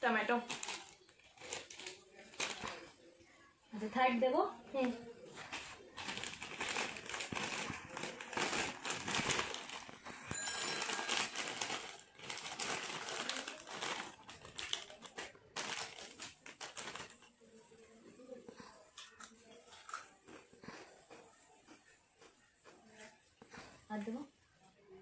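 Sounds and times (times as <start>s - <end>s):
chip bag crinkling: 0.2s - 2.9s, 5.4s - 17.3s.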